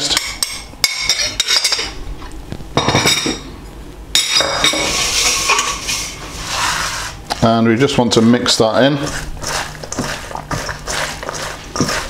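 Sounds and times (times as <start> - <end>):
metal spoon scraping bowls: 0.9 - 2.0, 4.2 - 7.2, 7.8 - 12.0
metal bowls scraping across worktop: 4.4 - 12.0.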